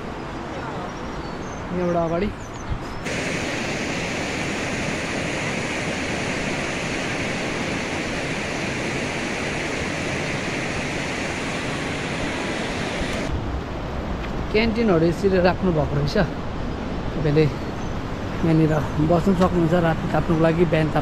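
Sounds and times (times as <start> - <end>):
river rushing over rocks: 3.1 - 13.3.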